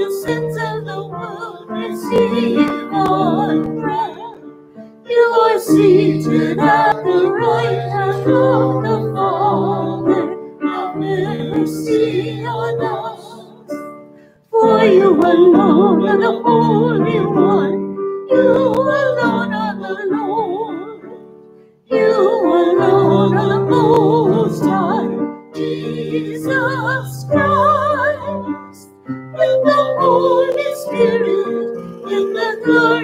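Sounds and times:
person singing with vibrato: 14.5 - 21.2, 21.9 - 33.0.

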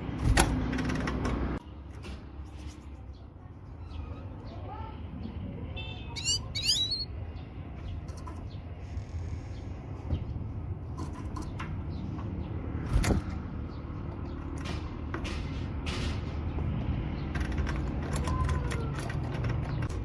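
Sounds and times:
finch chirping: 6.0 - 7.1.

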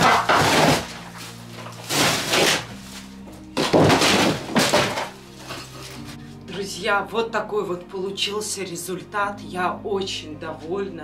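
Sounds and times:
wall boards cracking and tearing: 0.0 - 6.2
background music: 0.0 - 11.0.

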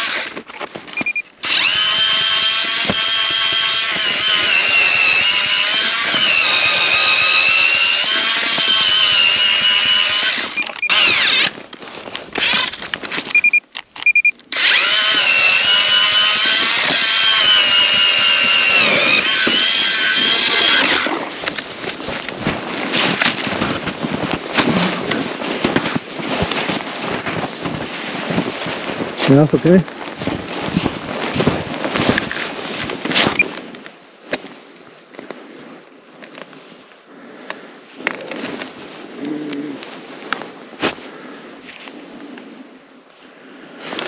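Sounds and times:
ice auger motor whining: 0.0 - 11.6, 12.3 - 13.5, 14.1 - 25.3.

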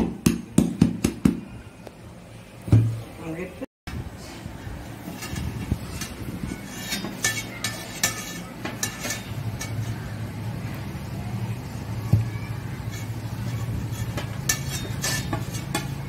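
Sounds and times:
metal plates clinking: 5.0 - 10.1, 12.9 - 16.0.

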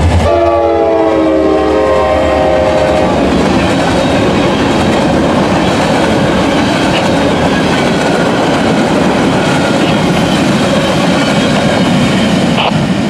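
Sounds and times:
freight train wheels rumbling on rail: 0.0 - 13.0.

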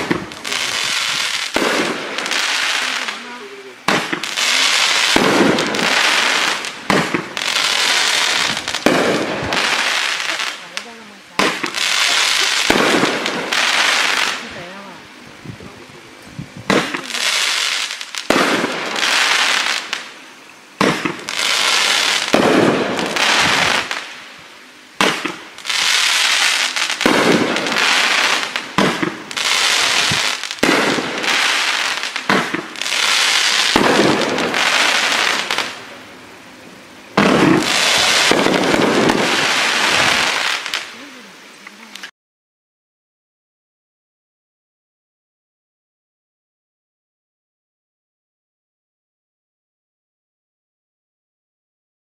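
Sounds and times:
firework launches: 0.0 - 14.7, 16.6 - 20.2, 20.8 - 36.2, 37.0 - 41.2
crackling firework bursts: 0.0 - 42.1.

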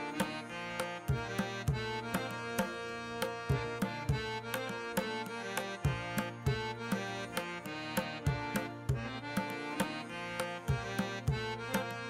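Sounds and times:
hand-drum rhythm: 0.0 - 12.0
sustained melody: 0.0 - 12.0.

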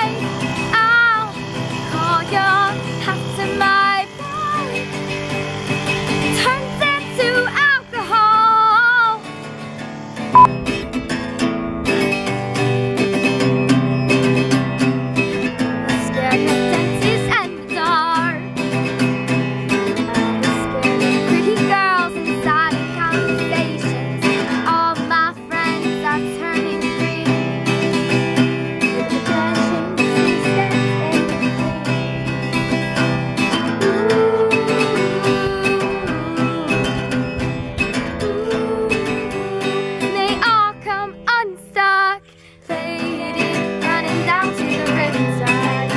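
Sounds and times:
girl singing: 0.0 - 4.9, 6.3 - 9.2, 15.9 - 18.6, 19.9 - 28.2, 28.8 - 32.6, 33.6 - 45.9
acoustic guitar strumming: 0.0 - 45.9.

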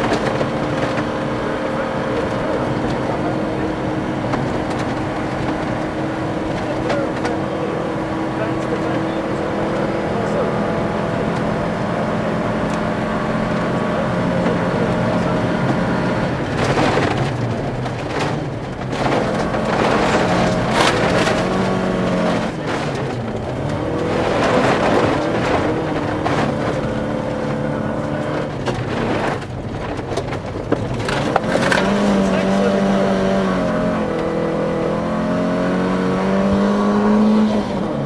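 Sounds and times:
gravel rattling against underbody: 0.0 - 38.0
rally car engine running hard: 0.0 - 38.0.

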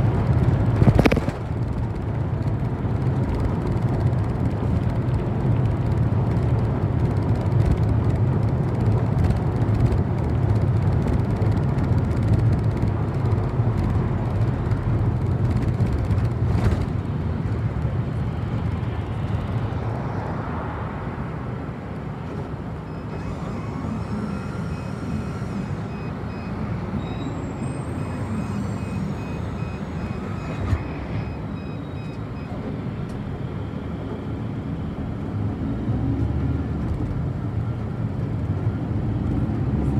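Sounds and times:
bus engine rumble: 0.0 - 39.9
faint high beeping: 22.8 - 32.6.

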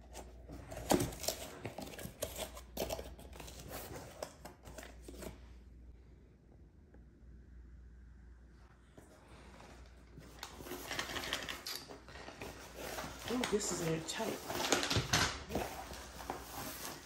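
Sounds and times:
plastic shrink wrap crinkling: 10.2 - 17.0.

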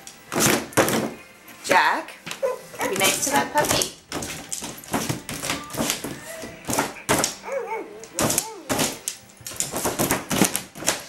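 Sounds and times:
small dog barking: 7.4 - 8.1.

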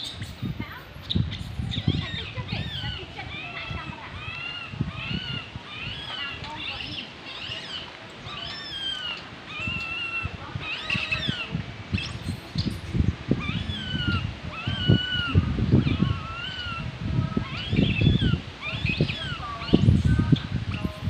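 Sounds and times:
baby monkey whimpering: 1.4 - 11.5, 13.4 - 19.8.

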